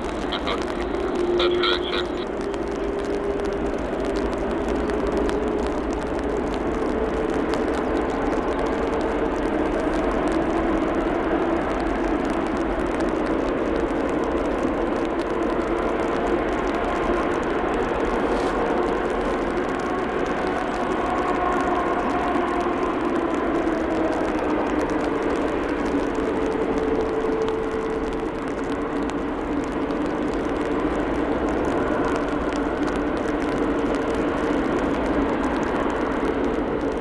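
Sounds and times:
jet engines whining: 0.0s - 5.7s.

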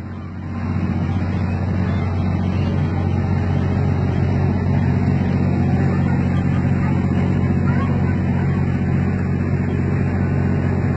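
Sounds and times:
low engine hum: 0.0s - 10.9s.

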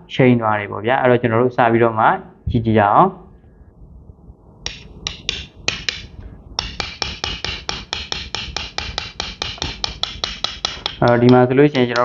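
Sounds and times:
steel tool tapping metal clicks: 4.7s - 12.0s.

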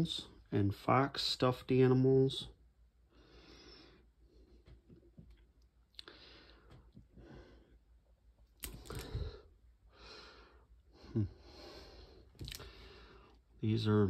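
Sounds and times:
breathing close to microphone: 6.0s - 7.8s, 8.8s - 13.4s.

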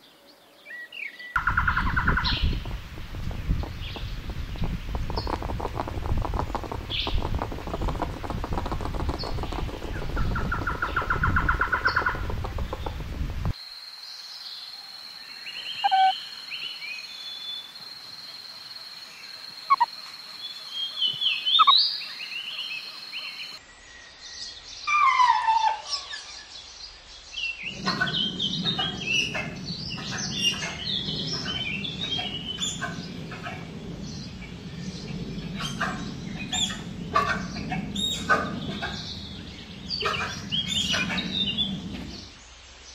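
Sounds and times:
birds chirping: 0.0s - 13.6s, 15.3s - 18.4s, 19.1s - 42.9s
low hum: 1.4s - 13.6s, 27.7s - 42.4s
high chirps and whistles: 15.7s - 16.2s, 19.7s - 19.9s, 21.5s - 21.9s.

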